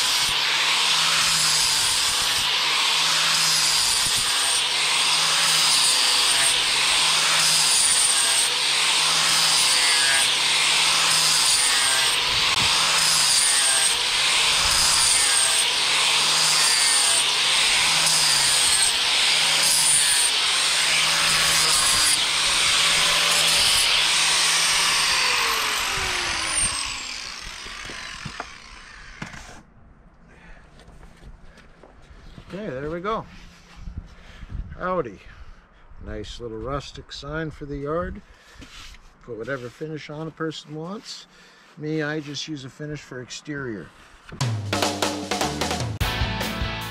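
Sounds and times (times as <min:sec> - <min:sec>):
angle grinder sanding wood: 0:00.0 - 0:29.6.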